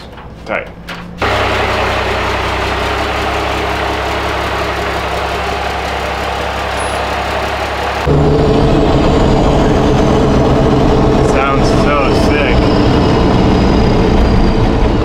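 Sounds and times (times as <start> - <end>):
diesel engine idling: 1.1 - 15.0.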